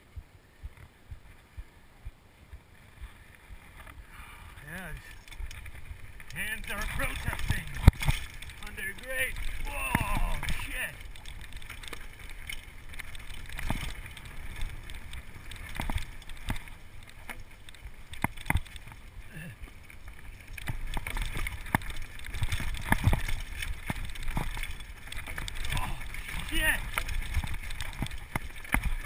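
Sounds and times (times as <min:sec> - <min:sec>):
tyre rumble: 0:00.6 - 0:29.0
bike rattling and clacking: 0:04.7 - 0:29.0.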